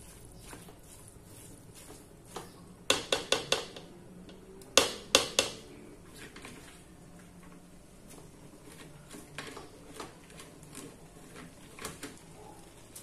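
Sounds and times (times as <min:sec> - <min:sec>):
spoon knocking on metal pot: 0:02.9 - 0:03.9, 0:04.8 - 0:05.6.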